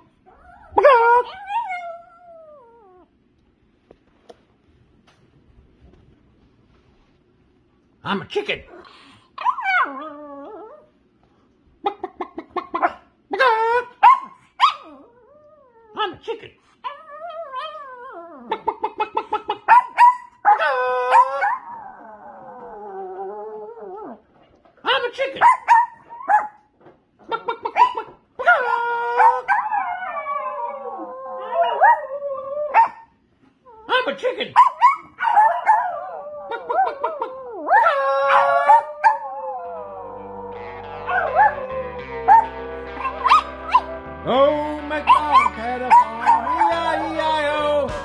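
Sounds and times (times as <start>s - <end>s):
small dog howling: 0.3s - 3.1s, 9.4s - 10.9s, 16.9s - 18.7s, 20.5s - 24.2s, 28.4s - 33.0s, 34.8s - 43.9s
dog yelping: 9.4s - 10.8s, 13.6s - 15.2s, 16.9s - 22.0s, 25.4s - 26.6s, 27.3s - 33.1s, 34.6s - 39.4s
background music: 39.6s - 48.0s.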